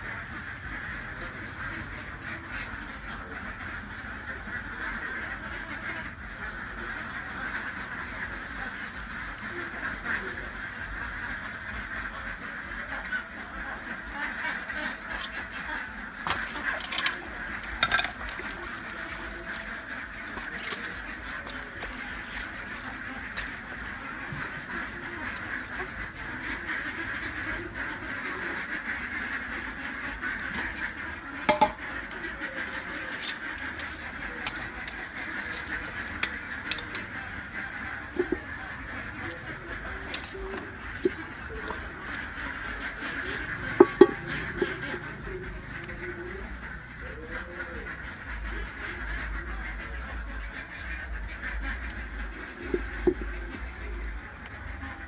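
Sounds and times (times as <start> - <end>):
animal calling: 0.0 - 55.0
knife and metal pot clattering: 16.2 - 23.5, 31.5 - 31.9, 38.1 - 39.0, 39.8 - 42.3, 43.6 - 45.0, 52.6 - 53.3.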